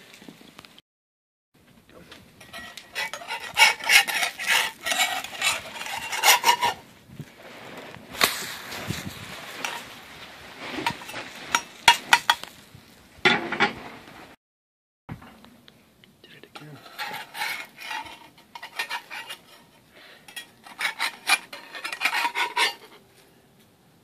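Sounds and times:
metal spatula scraping skillet: 0:02.4 - 0:06.8, 0:07.4 - 0:12.5, 0:16.6 - 0:23.1.

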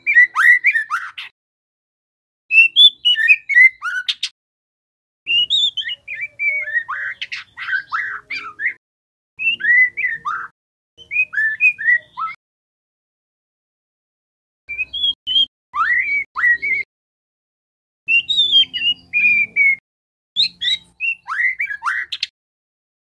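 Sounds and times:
bird whistling song: 0:00.0 - 0:01.3, 0:02.5 - 0:04.3, 0:05.3 - 0:08.8, 0:09.4 - 0:12.4, 0:14.7 - 0:16.9, 0:18.1 - 0:19.8, 0:20.4 - 0:22.3.

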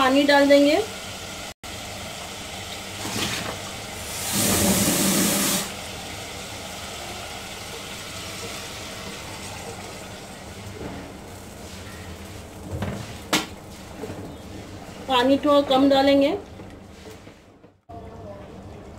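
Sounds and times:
hissing and sizzling in hot pan: 0:00.0 - 0:13.7.

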